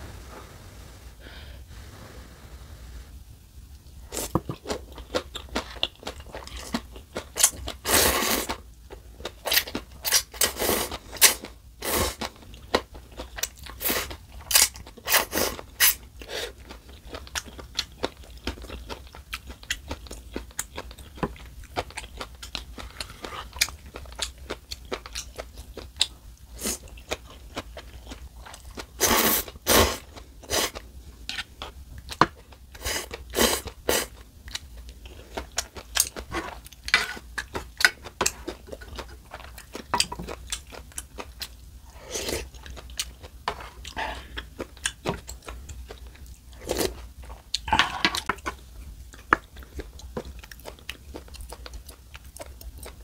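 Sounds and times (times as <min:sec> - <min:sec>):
chewing noodles: 0:09.2 - 0:53.0.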